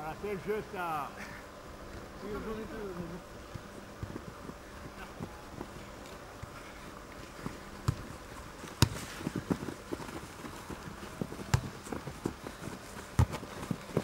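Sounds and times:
football being kicked: 0:08.7 - 0:09.6, 0:11.4 - 0:11.8, 0:13.1 - 0:14.0.

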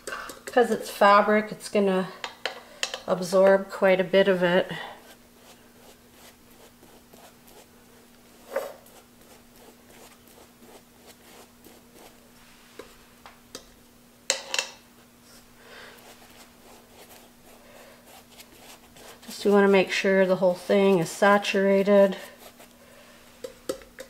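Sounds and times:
faint steady hum: 0:00.0 - 0:24.0
paintbrush strokes on fabric: 0:08.4 - 0:12.8, 0:16.0 - 0:19.8, 0:21.9 - 0:22.7
handling scrapes: 0:08.4 - 0:13.1.

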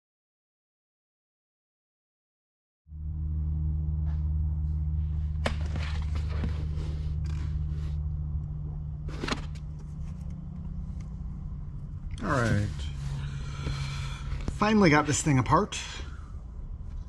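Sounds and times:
steady low hum: 0:02.9 - 0:17.0.

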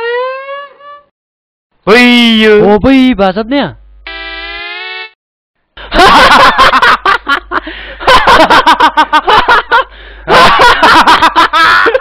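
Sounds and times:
men laughing heartily: 0:05.8 - 0:12.0.

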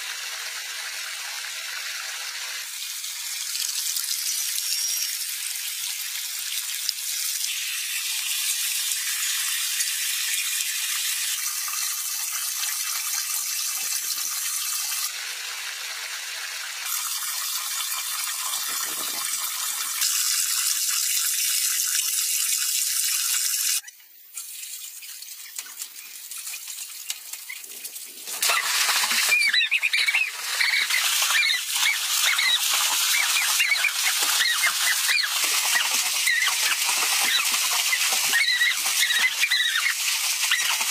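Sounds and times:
water rushing into a pool: 0:00.0 - 0:23.8, 0:24.4 - 0:40.9
high wavering squeaks: 0:28.4 - 0:40.8.

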